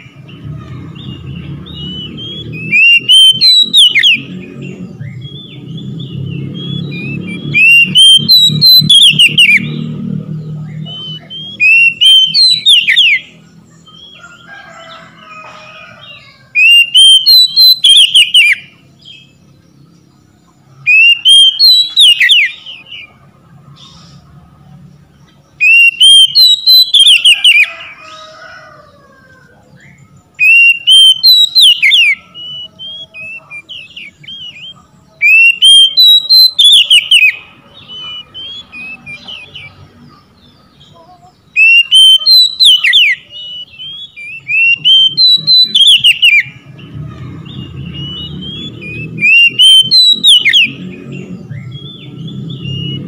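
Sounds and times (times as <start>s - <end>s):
bird singing whistled phrases: 1.0s - 4.3s, 5.0s - 14.2s, 16.6s - 19.3s, 20.9s - 23.1s, 25.6s - 27.7s, 29.9s - 39.8s, 41.5s - 46.6s, 47.5s - 53.0s.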